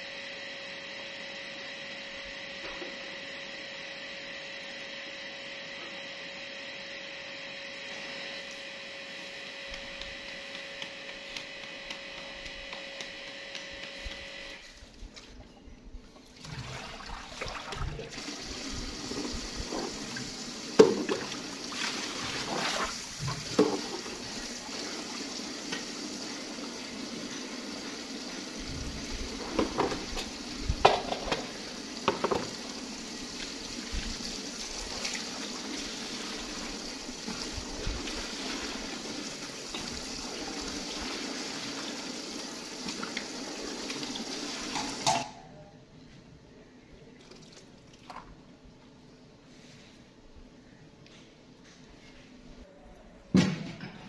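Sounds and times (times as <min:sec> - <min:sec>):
tap water splashing into bucket: 0:16.3 - 0:24.4, 0:29.3 - 0:32.7, 0:42.8 - 0:45.3, 0:47.2 - 0:48.4.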